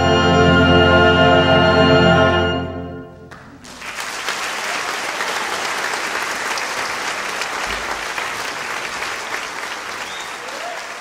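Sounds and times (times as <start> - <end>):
audience applause: 3.3 - 11.0.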